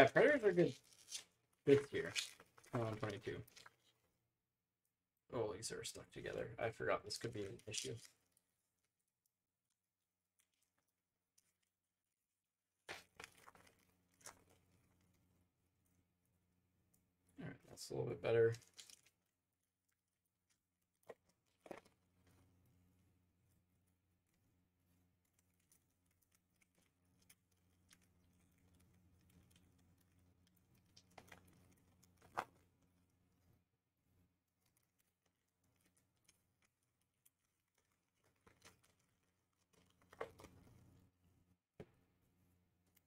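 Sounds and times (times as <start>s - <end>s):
card wrappers rustling: 0.0s - 3.9s.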